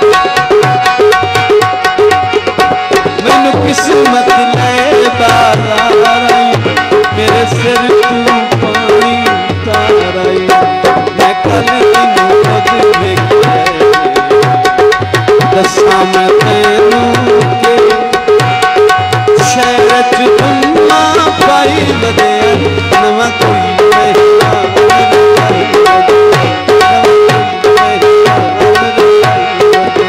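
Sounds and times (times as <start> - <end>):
hand drum rhythm: 0.0 - 30.0
harmonium drone: 0.0 - 30.0
man singing: 2.9 - 30.0.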